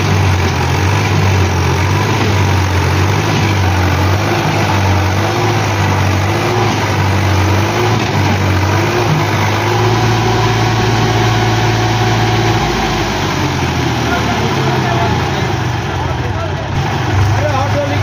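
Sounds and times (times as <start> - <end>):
tractor diesel engine under load: 0.0 - 18.0.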